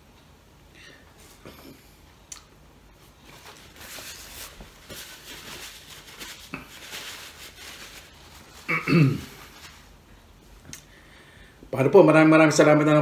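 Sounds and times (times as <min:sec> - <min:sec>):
paper napkin rustling: 0:03.0 - 0:10.1.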